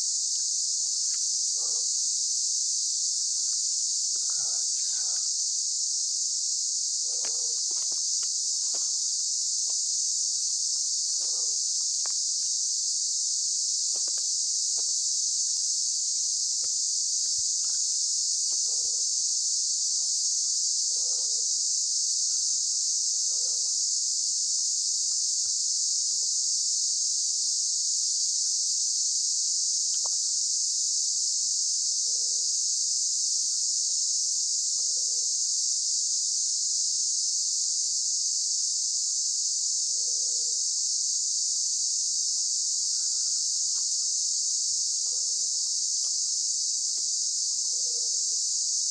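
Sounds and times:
insects chorus: 0.0s - 48.9s
footsteps on leafy dirt trail: 7.2s - 9.9s.

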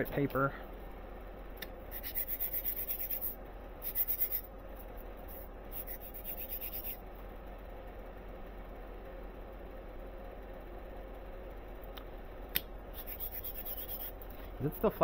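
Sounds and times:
metal plate scratching on sandpaper: 1.9s - 4.4s, 5.8s - 7.0s, 13.0s - 14.2s.

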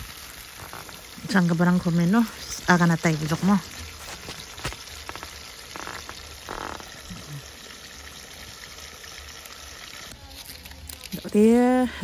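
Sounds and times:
chicken sizzling in hot oil: 0.0s - 11.8s
small oil pops: 4.0s - 6.9s.

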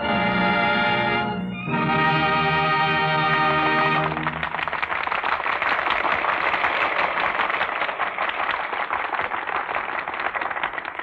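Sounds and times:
orchestra chord: 0.0s - 4.4s
audience applause: 3.0s - 11.0s.

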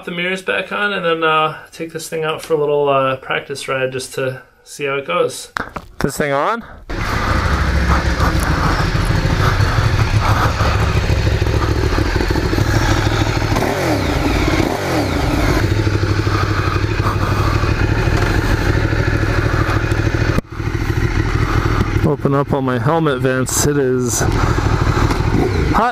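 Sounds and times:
motorcycle engine idling: 6.9s - 25.9s.

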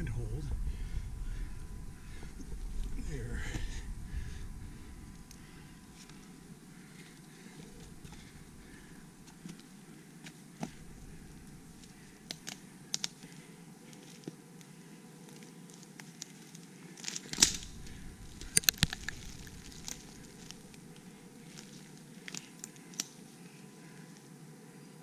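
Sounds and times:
low steady hum: 0.0s - 25.0s
scrambling over rock and leaves: 15.2s - 23.0s.

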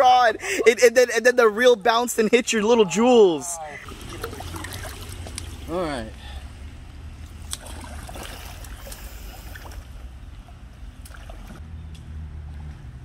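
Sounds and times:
steady low rumble: 3.6s - 11.2s
water splashing and lapping: 3.6s - 11.6s.

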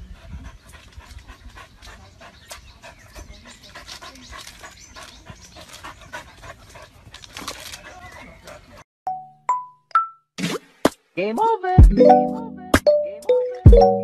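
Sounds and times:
dog panting: 0.0s - 8.8s.

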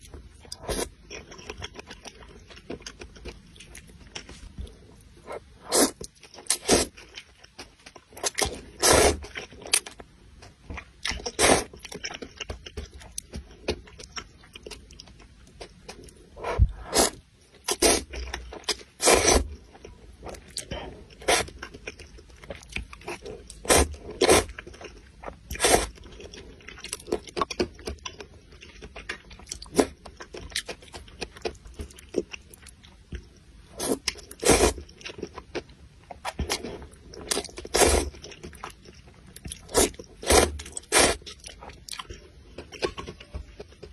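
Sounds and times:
noodles slurped and chewed: 36.4s - 42.9s.

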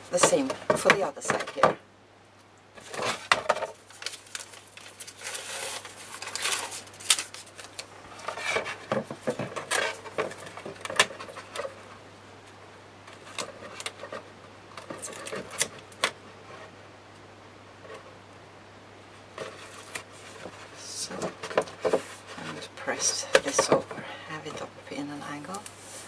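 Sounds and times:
paper rustling and crinkling: 2.8s - 12.0s, 13.0s - 16.7s, 19.3s - 24.7s.

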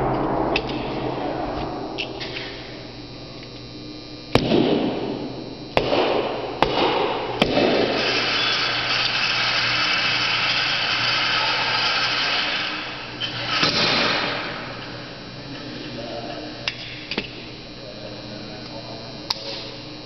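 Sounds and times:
pistol gunshots: 4.3s - 5.1s, 5.8s - 8.0s.

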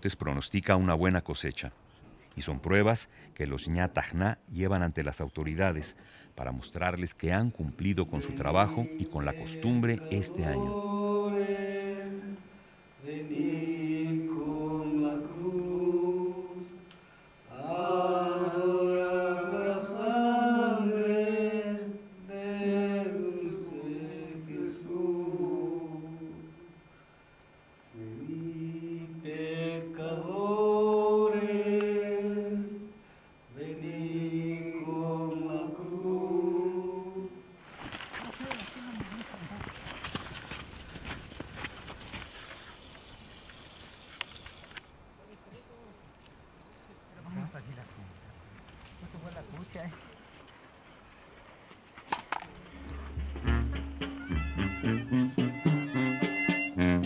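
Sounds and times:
voices chanting slowly: 7.6s - 40.6s.

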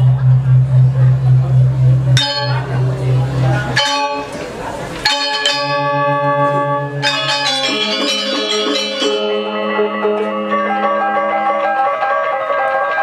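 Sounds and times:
low gong pulsing: 0.0s - 10.0s
metallophones ringing: 0.0s - 12.4s.

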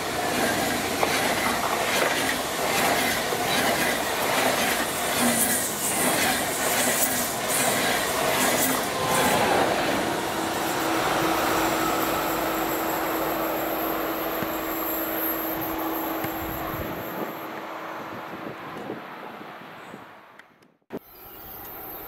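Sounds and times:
train wheels rushing on rails: 0.0s - 19.0s
steady train hum: 0.0s - 20.4s.

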